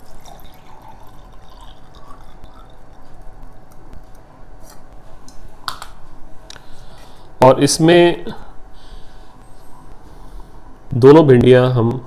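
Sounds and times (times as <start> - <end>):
water sloshing in glass: 0.0 - 3.3
low steady hum: 0.0 - 12.0.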